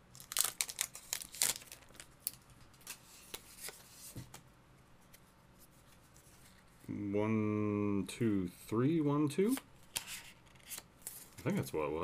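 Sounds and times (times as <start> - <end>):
foil wrapper crinkling and tearing: 0.1 - 2.8
cards being handled: 0.3 - 4.4, 9.4 - 11.6.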